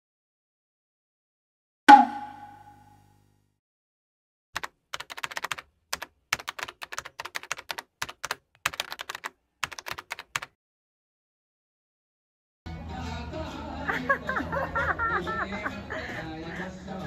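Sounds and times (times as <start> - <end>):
keyboard typing clicks: 4.6 - 10.5.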